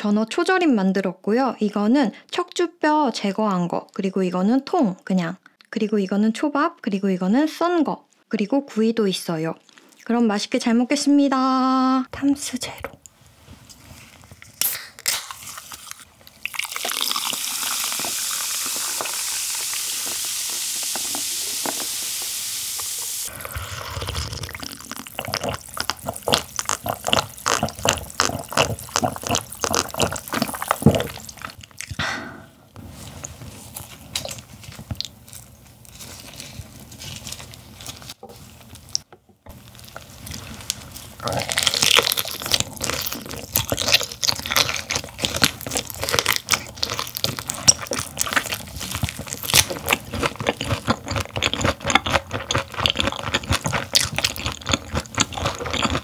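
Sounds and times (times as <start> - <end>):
wet crunchy chewing: 14.3 - 22.2, 23.2 - 32.0, 33.2 - 56.0
gulping and swallowing drink: 16.4 - 19.2, 23.3 - 32.1.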